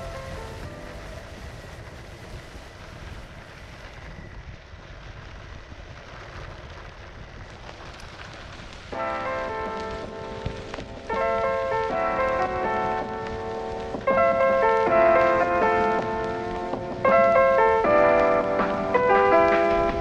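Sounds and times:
wheels rolling over gravel: 0:00.0 - 0:20.0
wind on microphone: 0:00.0 - 0:20.0
music with steady beat: 0:09.3 - 0:20.0.

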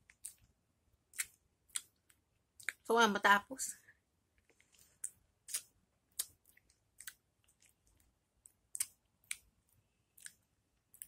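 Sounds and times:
wet mouth sucking and biting: 0:05.0 - 0:07.8.

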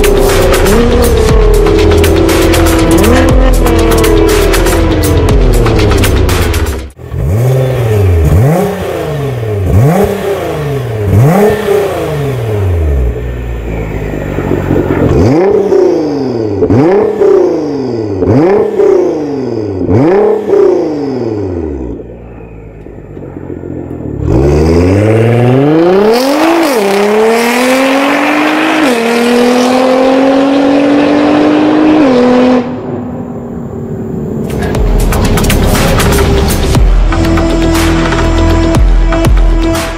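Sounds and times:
car engine revving: 0:00.0 - 0:39.9
car accelerating through gears: 0:23.3 - 0:33.2.

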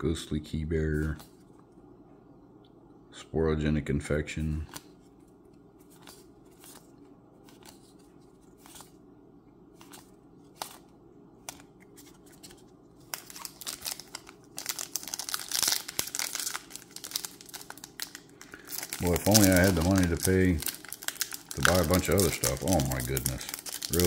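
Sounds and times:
trading cards clicking: 0:09.8 - 0:10.8
plastic wrapper crinkling and tearing: 0:11.5 - 0:24.0.

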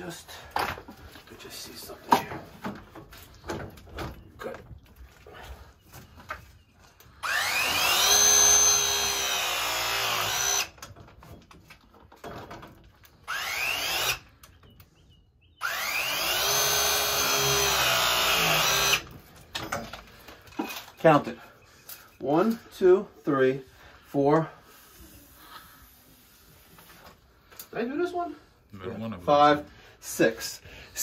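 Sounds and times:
pipe press tool motor whining: 0:07.2 - 0:10.8, 0:13.3 - 0:14.3, 0:15.6 - 0:19.1.

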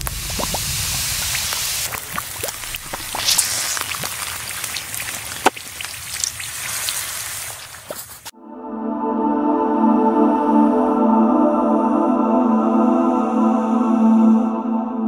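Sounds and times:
molten material sizzling and popping: 0:00.0 - 0:08.3.

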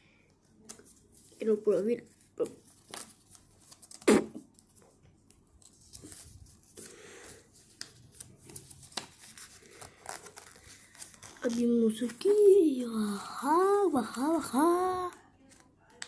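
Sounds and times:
paper rustling and crinkling: 0:00.5 - 0:12.4.

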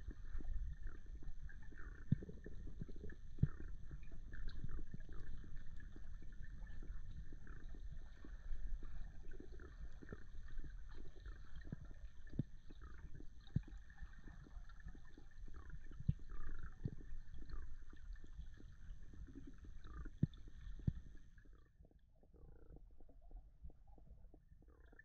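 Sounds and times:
muffled underwater rumble: 0:00.0 - 0:25.0.

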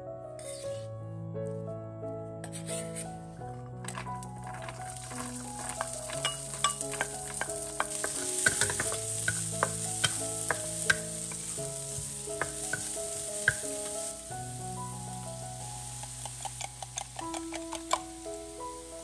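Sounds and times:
wooden spatula scraping pan: 0:02.5 - 0:03.1, 0:03.8 - 0:14.2
food sizzling in hot oil: 0:03.9 - 0:19.0.

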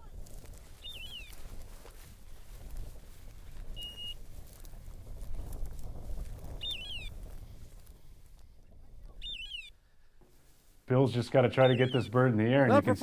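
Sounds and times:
wind rumble: 0:00.0 - 0:09.4
rustling in dry grass: 0:00.0 - 0:10.9.

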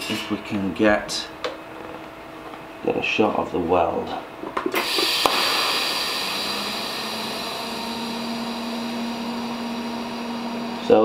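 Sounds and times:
welding arc hissing: 0:04.8 - 0:10.7.

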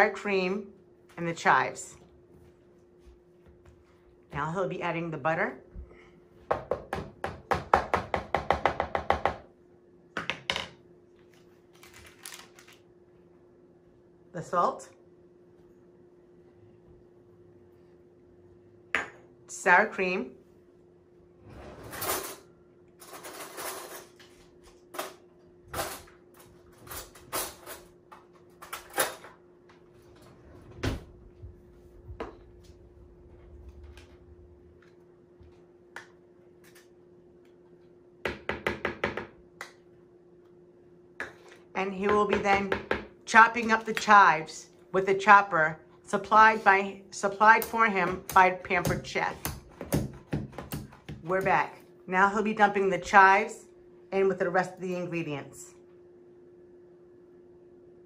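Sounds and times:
faint steady hum: 0:00.0 - 0:58.0
wrapper crinkling: 0:11.7 - 0:12.8
metal utensils clattering: 0:21.9 - 0:24.2
potato masher pounding potatoes: 0:47.2 - 0:51.6.

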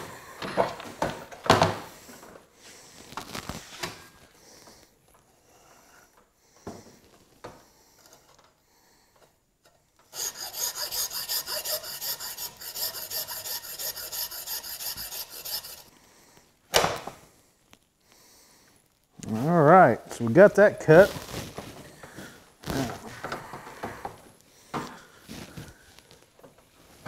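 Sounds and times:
hacksaw cutting metal shaft: 0:10.1 - 0:15.9.

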